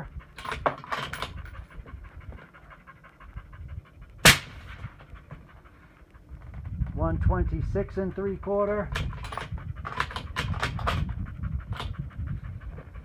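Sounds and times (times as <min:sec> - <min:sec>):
suppressed rifle shot: 0:04.2 - 0:04.8.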